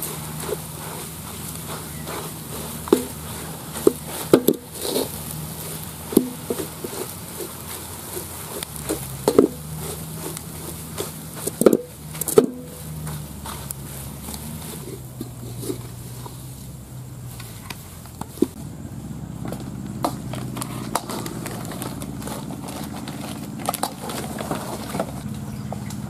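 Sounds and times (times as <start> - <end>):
spoon knocking and scraping pot: 0.0 - 5.2.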